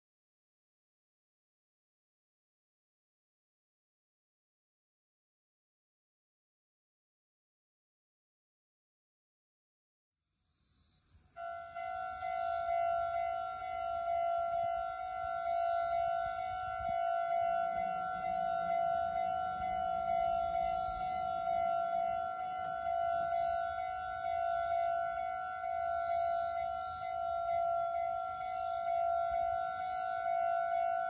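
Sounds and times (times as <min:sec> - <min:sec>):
level-crossing alarm ringing: 0:11.4 - 0:31.0.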